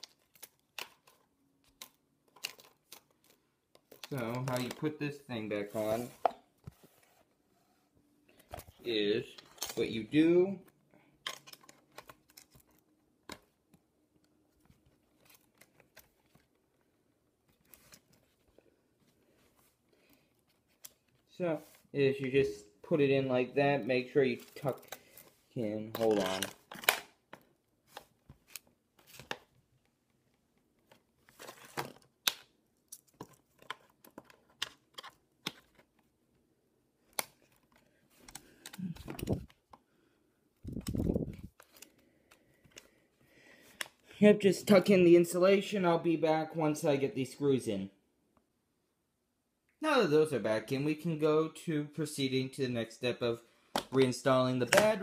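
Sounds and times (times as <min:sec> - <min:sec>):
plastic and metal parts clicking: 0:11.2 - 0:13.5.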